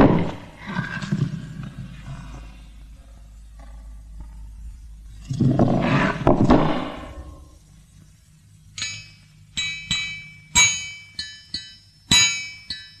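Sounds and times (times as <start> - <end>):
bell-like metallic strikes: 8.8 - 13.0.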